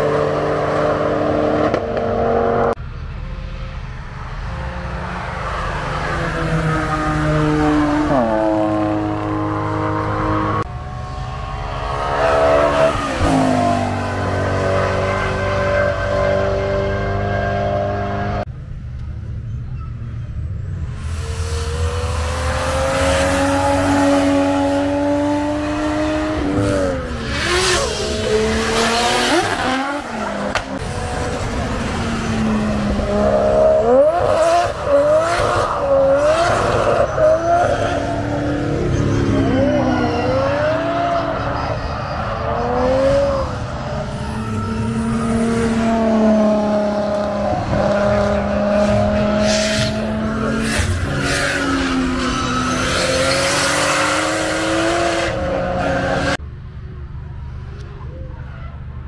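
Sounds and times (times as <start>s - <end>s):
car engine revving: 20.8s - 56.4s
tyres squealing and skidding: 33.9s - 46.1s, 49.3s - 55.0s.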